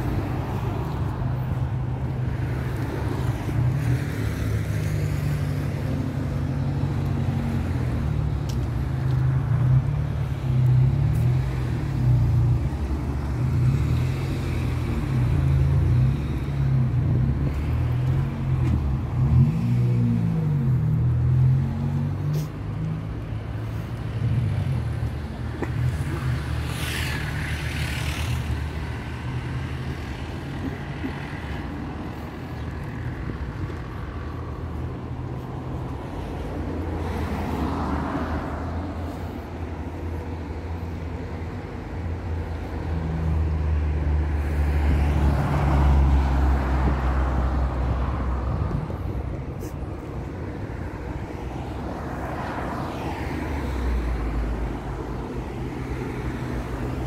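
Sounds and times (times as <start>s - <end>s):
cars passing: 0.0s - 57.0s.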